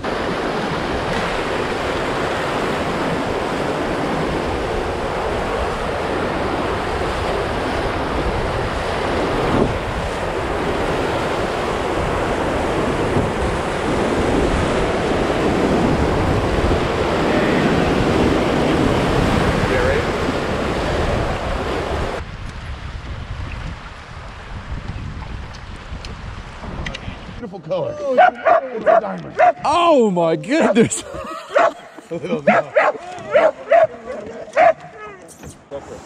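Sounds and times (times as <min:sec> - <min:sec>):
whitewater rushing: 0:00.0 - 0:22.2
wind buffeting microphone: 0:00.0 - 0:29.9, 0:32.5 - 0:35.6.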